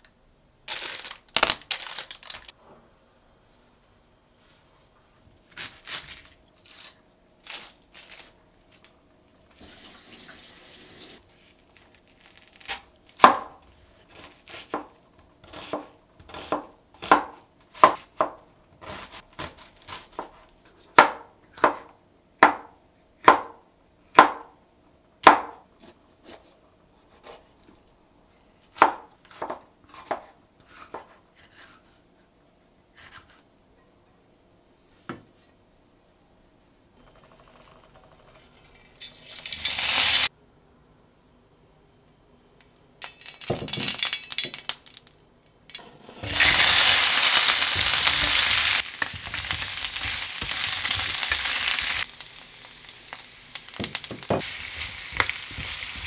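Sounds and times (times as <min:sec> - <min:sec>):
onion skin rustling: 0:00.7 - 0:02.5, 0:05.4 - 0:08.9, 0:11.2 - 0:12.9, 0:46.2 - 0:56.0.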